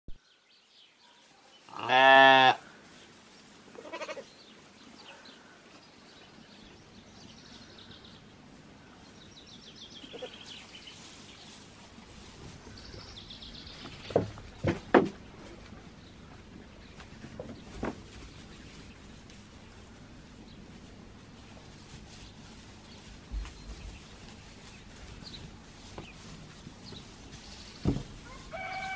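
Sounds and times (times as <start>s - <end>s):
sheep bleating: 1.7s - 2.6s, 3.8s - 4.3s.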